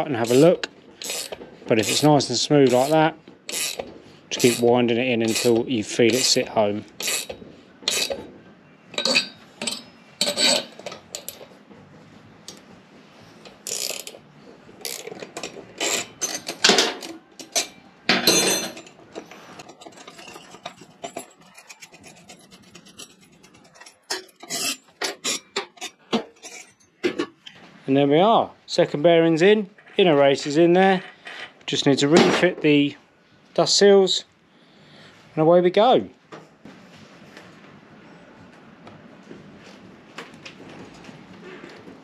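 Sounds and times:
metal rasping and clicking: 0:00.2 - 0:06.4, 0:07.0 - 0:08.2, 0:18.8 - 0:26.8
spanner winding nut on threaded bar: 0:00.2 - 0:08.2, 0:13.5 - 0:14.2, 0:14.8 - 0:16.6.

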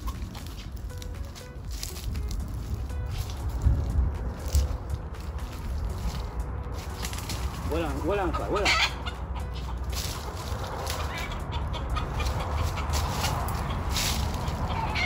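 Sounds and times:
bird scratchy rasp: 0:08.6 - 0:15.0.

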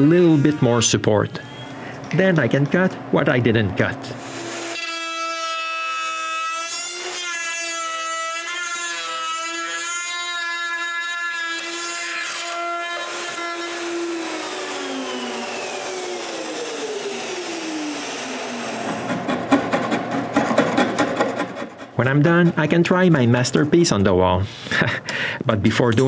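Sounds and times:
router whining and spinning down: 0:11.6 - 0:19.4.

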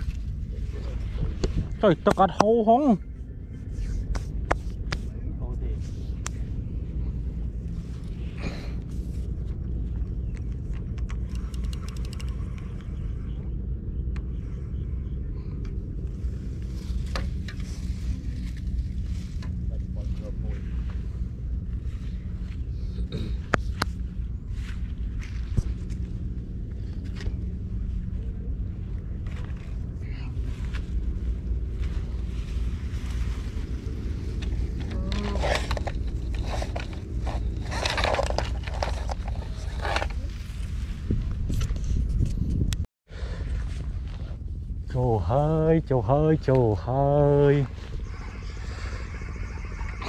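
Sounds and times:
wind rumble on microphone: 0:00.0 - 0:50.0
fishing rod clicks: 0:10.9 - 0:12.7
rustling in grass: 0:16.2 - 0:22.9, 0:28.8 - 0:41.5.

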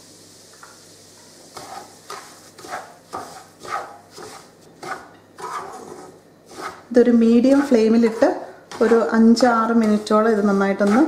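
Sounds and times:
faint sizzle: 0:00.0 - 0:04.6
spatula scraping frying pan: 0:01.4 - 0:11.0.

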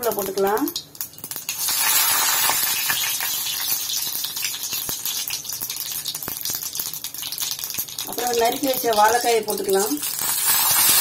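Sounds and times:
leaves sizzling in hot oil: 0:00.0 - 0:11.0.

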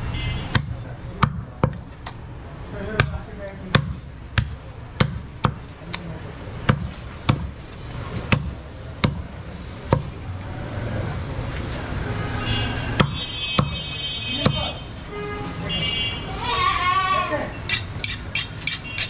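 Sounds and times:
background noise: 0:00.0 - 0:19.0
cleaver chopping into wooden block: 0:00.5 - 0:02.2, 0:03.0 - 0:06.0, 0:06.7 - 0:07.5, 0:08.3 - 0:09.3, 0:13.0 - 0:13.8.

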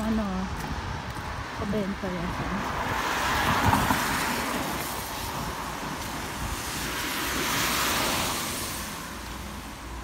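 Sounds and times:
car tyres hissing on wet road: 0:02.7 - 0:10.0.

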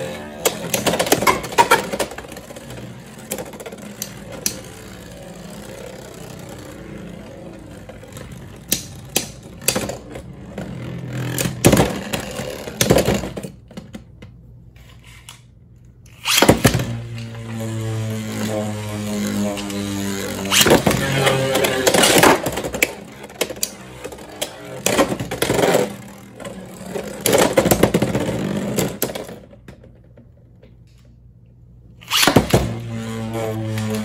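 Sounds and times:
spinning tops whirring: 0:00.0 - 0:10.1.

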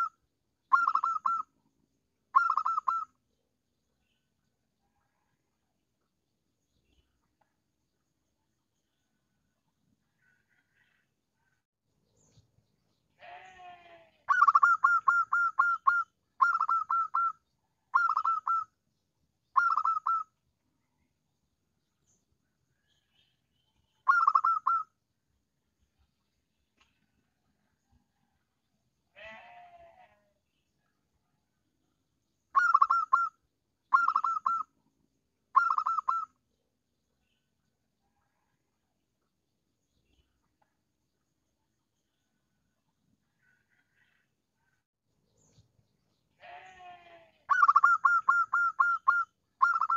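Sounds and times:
dove cooing: 0:00.7 - 0:01.5, 0:02.4 - 0:03.0, 0:14.3 - 0:17.3, 0:18.0 - 0:18.6, 0:19.6 - 0:20.2, 0:24.1 - 0:24.8, 0:33.9 - 0:34.6, 0:35.6 - 0:36.2, 0:47.5 - 0:49.9
low rough bird sound: 0:08.3 - 0:18.8, 0:41.6 - 0:49.9.

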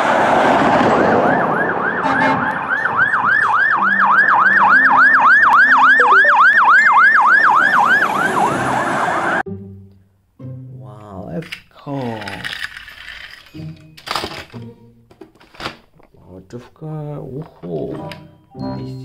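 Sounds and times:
loud rushing noise: 0:00.0 - 0:03.0
fire truck siren yelping: 0:00.0 - 0:09.5.

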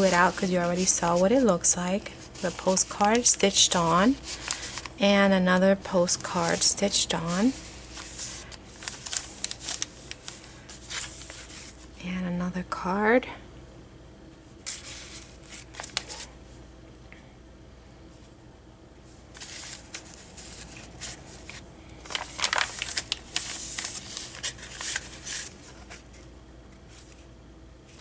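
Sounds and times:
paper rustling: 0:00.0 - 0:05.0, 0:06.2 - 0:11.9, 0:14.7 - 0:16.3, 0:19.3 - 0:27.3.

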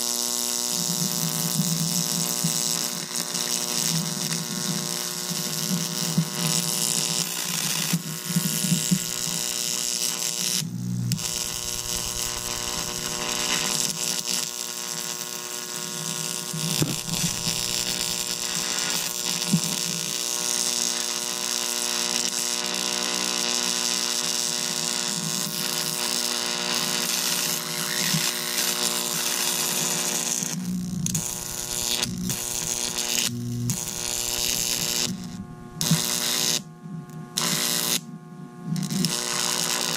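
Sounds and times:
electric arcs buzzing and crackling: 0:00.0 - 0:36.7, 0:37.4 - 0:38.0, 0:38.8 - 0:39.9
steady electrical hum: 0:08.0 - 0:14.2, 0:16.5 - 0:20.1, 0:25.3 - 0:39.9.

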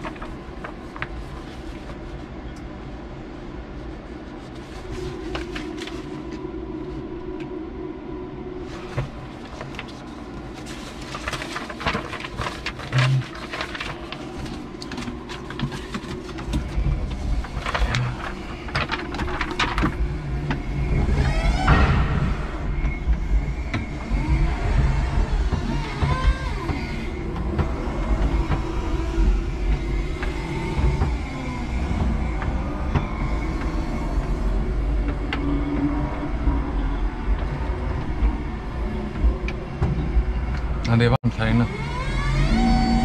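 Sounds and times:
forklift low hum: 0:00.0 - 0:43.0
rising whine: 0:02.4 - 0:43.0.

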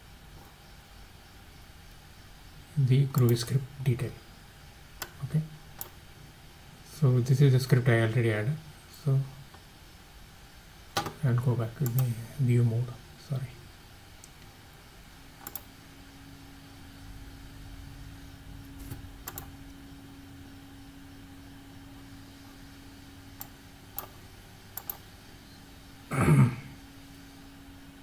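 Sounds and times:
faint steady hum: 0:00.0 - 0:28.0
computer mouse clicks: 0:11.0 - 0:11.2, 0:11.8 - 0:12.1, 0:15.4 - 0:15.7, 0:18.8 - 0:19.6, 0:23.4 - 0:24.2, 0:24.8 - 0:25.0.

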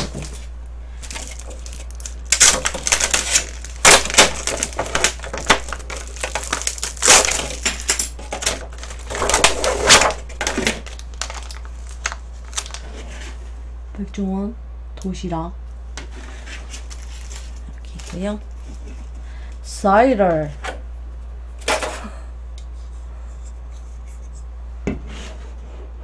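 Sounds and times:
plastic wrapping crinkling: 0:00.0 - 0:13.4, 0:16.4 - 0:19.2.

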